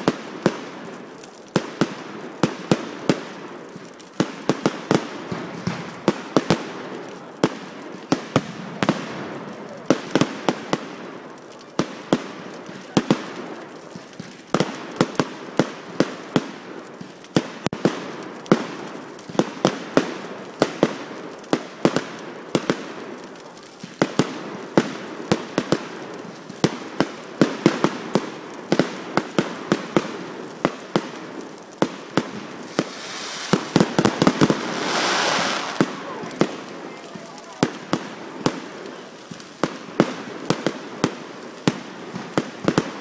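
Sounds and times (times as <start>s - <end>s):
fireworks crackling hiss: 0.0s - 43.0s
fireworks bangs: 4.2s - 11.0s, 26.6s - 43.0s.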